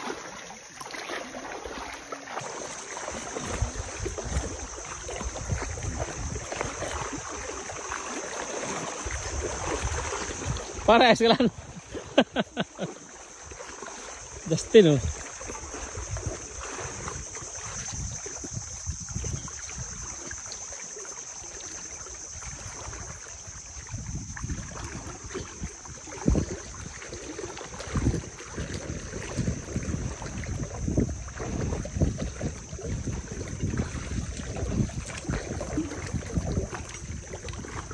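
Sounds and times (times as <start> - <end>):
people wading through water: 0.0 - 37.9
wind buffeting microphone: 3.1 - 12.6, 14.3 - 20.6, 22.2 - 37.9.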